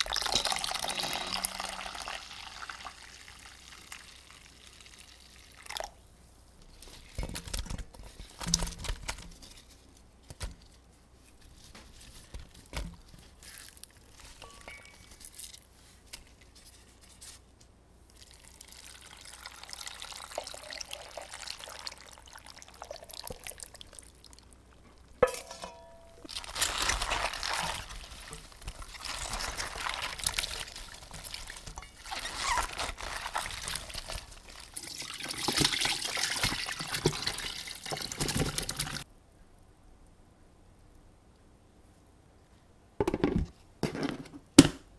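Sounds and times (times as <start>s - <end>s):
wet squishing and rustling: 6.7s - 17.5s, 26.3s - 39.1s.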